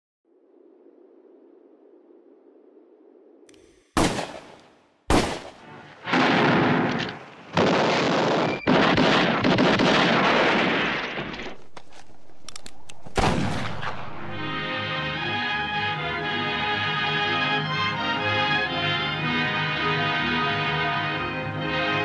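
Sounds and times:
rapid gunfire: 0:03.9 - 0:06.9, 0:07.5 - 0:11.3
gunshots: 0:03.9 - 0:11.7, 0:13.0 - 0:14.4
film music: 0:04.0 - 0:07.2, 0:12.5 - 0:22.0.

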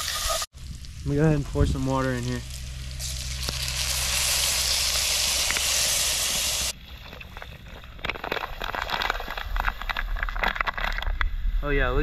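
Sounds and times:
water sizzling on hot vegetables: 0:00.0 - 0:06.8.

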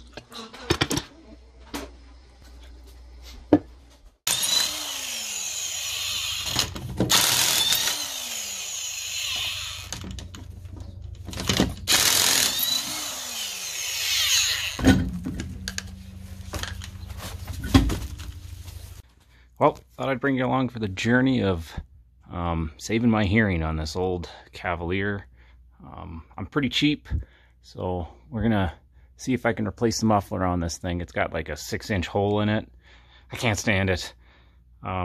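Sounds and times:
impact wrench spinning: 0:05.6 - 0:10.6, 0:11.3 - 0:17.0
low hum: 0:09.4 - 0:13.2, 0:14.5 - 0:19.0.

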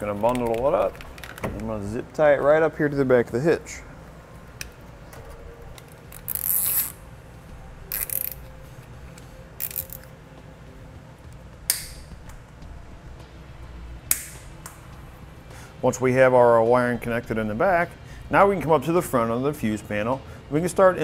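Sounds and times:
zip ties ratcheting tight: 0:06.1 - 0:07.0, 0:07.9 - 0:08.5, 0:09.6 - 0:10.1.

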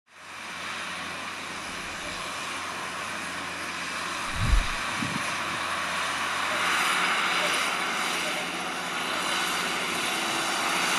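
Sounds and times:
distant tractor engine hum: 0:00.1 - 0:10.9
low thump: 0:04.3 - 0:05.0.

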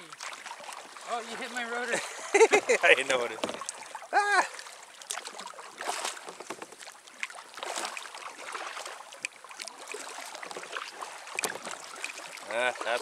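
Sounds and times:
kayak paddle strokes in water: 0:00.0 - 0:13.0
water splashes and drips: 0:00.0 - 0:13.0
person vocal exclamation: 0:04.2 - 0:04.5.

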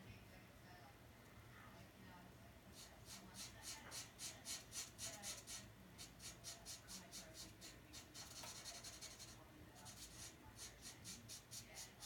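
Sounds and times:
brush pen scratching on paper: 0:02.8 - 0:12.0.

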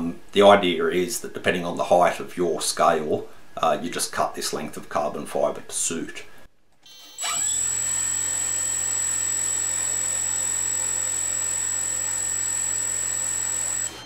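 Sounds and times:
electric motor whine: 0:07.0 - 0:14.0.

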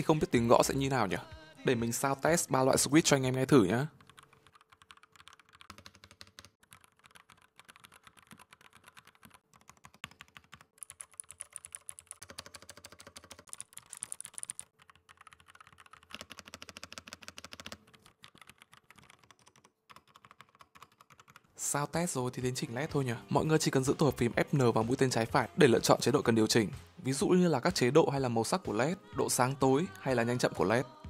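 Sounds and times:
mechanical keyboard typing: 0:03.9 - 0:21.4.

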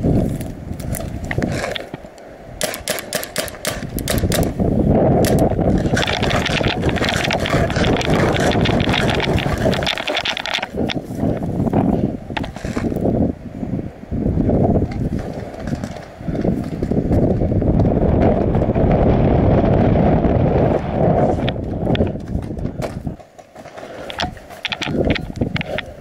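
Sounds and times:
footsteps and gear rustle: 0:00.0 - 0:02.2, 0:05.3 - 0:13.1, 0:21.3 - 0:26.0
paintball marker shots: 0:02.6 - 0:04.6.

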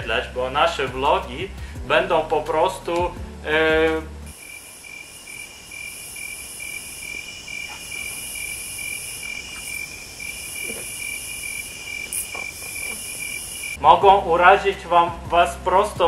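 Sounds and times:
crickets chirping: 0:04.3 - 0:13.8
high shimmering hiss: 0:04.3 - 0:13.8.

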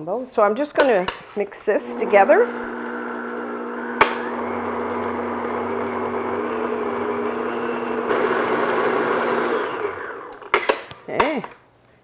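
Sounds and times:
electric stand mixer running: 0:01.8 - 0:10.5.

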